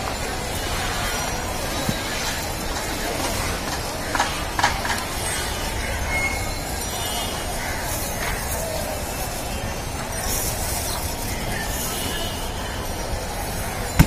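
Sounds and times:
cows feeding: 0.1s - 4.0s.

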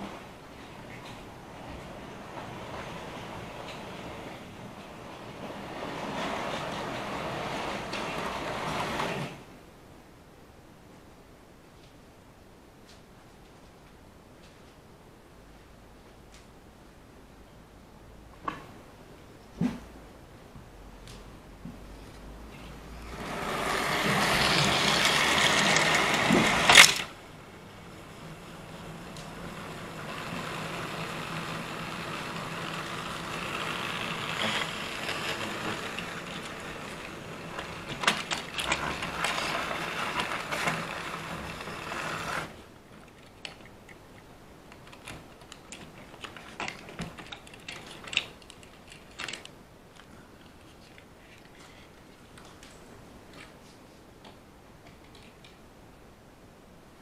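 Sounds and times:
model rolling stock clicking on rails: 0.0s - 9.4s, 23.0s - 49.6s
model locomotive motor whirring: 22.9s - 27.2s, 27.9s - 42.6s.

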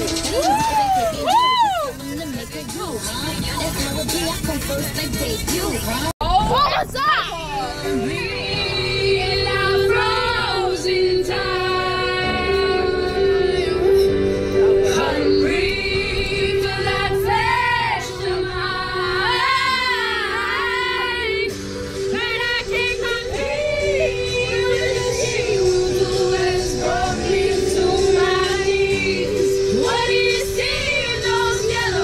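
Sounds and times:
backing track music: 0.0s - 32.0s
teenagers singing loudly: 7.4s - 14.0s, 14.8s - 32.0s.

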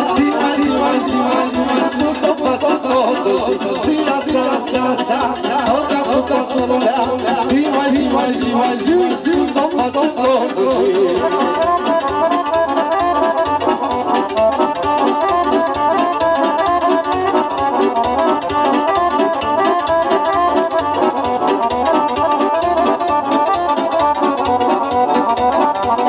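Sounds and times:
person singing: 0.0s - 11.7s
accordion and keyboard melody: 0.0s - 26.0s
keyboard beat: 0.0s - 26.0s.

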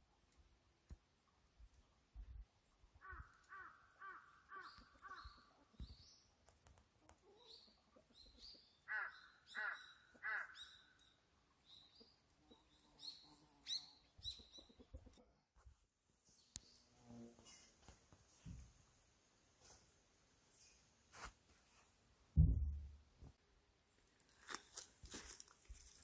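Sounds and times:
small birds chirping: 1.2s - 15.3s, 16.1s - 18.0s
crow cawing: 3.0s - 5.3s, 8.9s - 10.6s.

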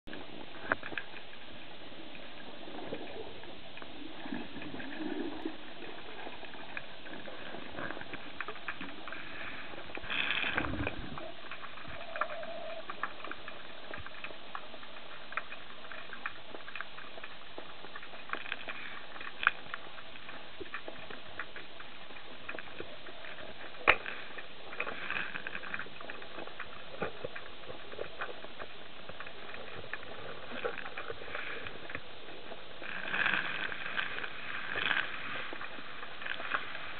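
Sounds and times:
small clicks and crackles: 0.1s - 36.9s.

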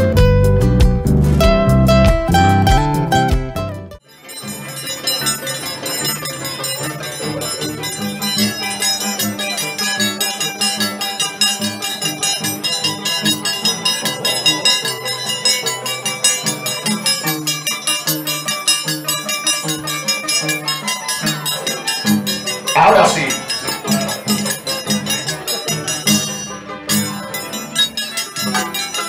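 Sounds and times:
andean band music: 22.8s - 23.5s.

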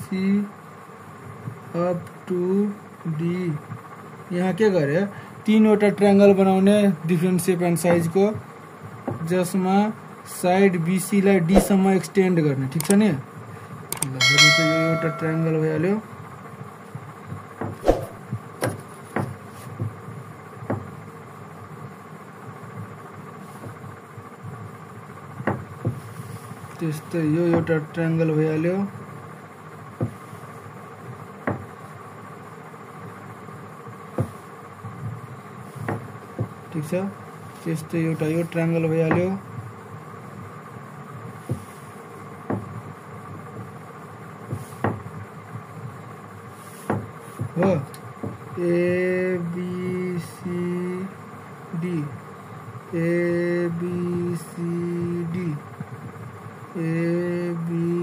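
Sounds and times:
room hum: 0.0s - 58.0s
low hum: 14.0s - 15.9s.

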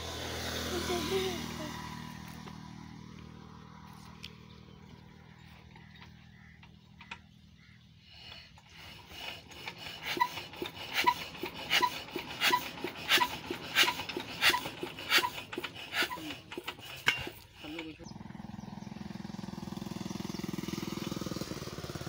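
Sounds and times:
rasping chuff with clicks: 0.0s - 22.0s
diesel engine being hand cranked: 5.2s - 22.0s.

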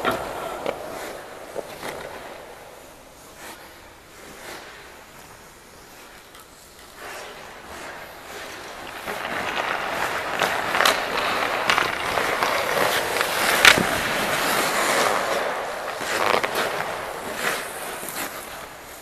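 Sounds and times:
skate blades scraping ice: 0.0s - 19.0s.

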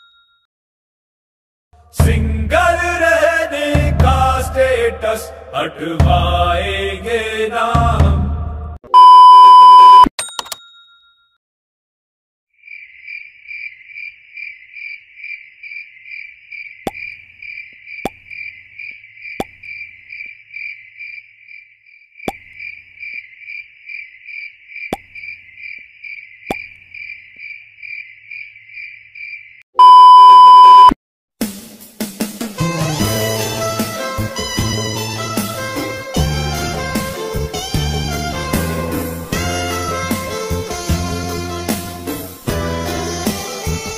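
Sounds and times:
music: 1.8s - 8.8s, 31.4s - 43.9s
loud steady beep: 8.9s - 10.1s, 29.8s - 31.0s
crickets chirping: 12.6s - 29.6s.

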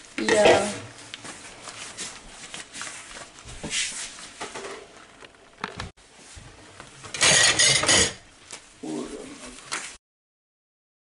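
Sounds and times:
dishes clinking in sink: 7.1s - 8.3s.

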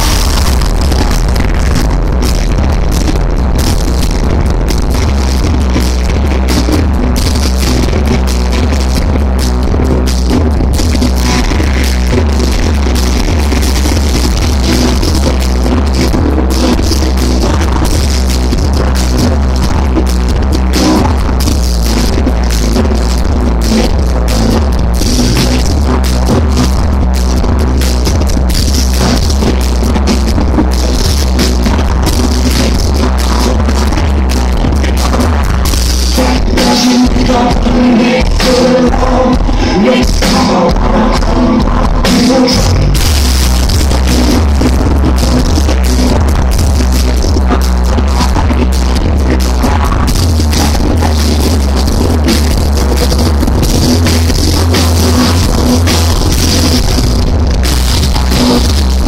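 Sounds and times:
drum kit hits: 0.0s - 19.9s
drums: 0.0s - 59.0s
heavy bass line: 0.0s - 59.0s
keyboards: 0.0s - 59.0s
live rock band playing: 0.0s - 59.0s
sung vocals: 28.8s - 59.0s.

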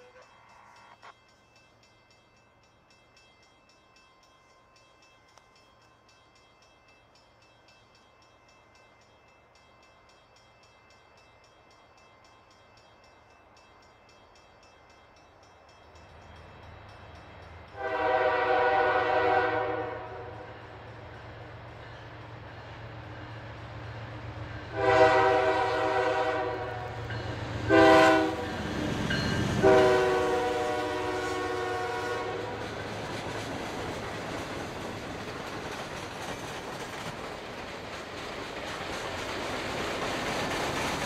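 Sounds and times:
locomotive horn blast: 17.8s - 20.5s, 24.7s - 27.0s, 27.7s - 28.6s, 29.6s - 32.6s.

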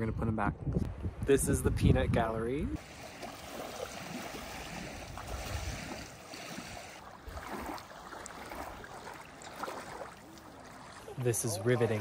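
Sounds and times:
waves lapping on gravel shore: 2.8s - 11.2s.

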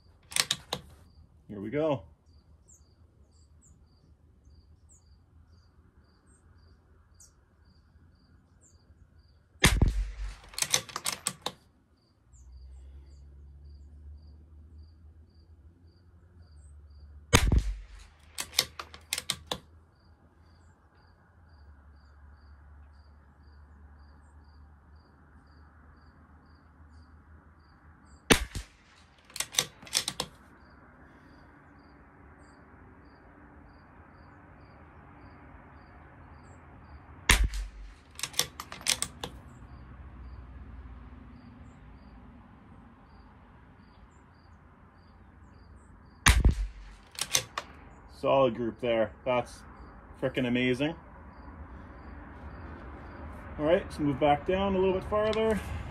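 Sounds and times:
cricket chirping: 0.0s - 1.4s, 2.1s - 48.3s, 49.0s - 55.5s
metallic clicks of rifle bolt: 0.2s - 1.0s, 9.6s - 11.6s, 17.4s - 19.7s, 28.3s - 30.4s, 37.3s - 39.4s, 46.3s - 47.8s
rifle shots: 9.6s - 11.4s, 17.3s - 19.6s, 28.3s - 30.3s, 37.3s - 39.2s, 46.2s - 47.8s.

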